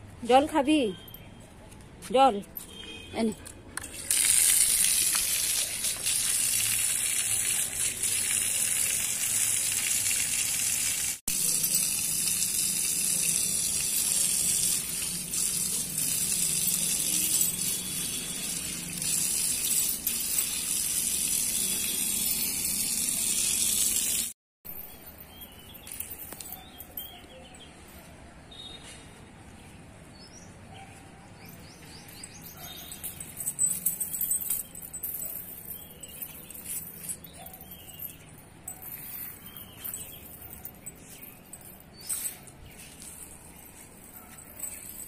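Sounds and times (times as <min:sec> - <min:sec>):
water splashing onto concrete: 0:03.8 - 0:24.4.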